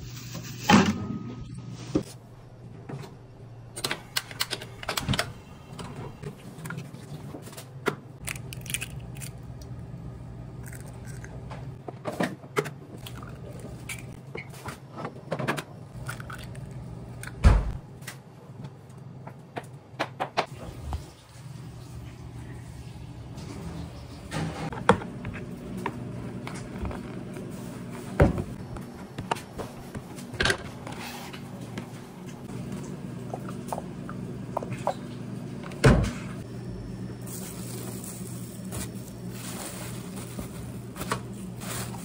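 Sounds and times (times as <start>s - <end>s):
steady low hum: 21.8s - 42.0s.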